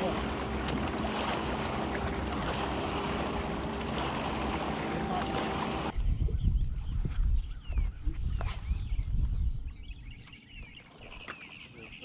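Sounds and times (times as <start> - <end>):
water lapping: 0.0 - 5.9.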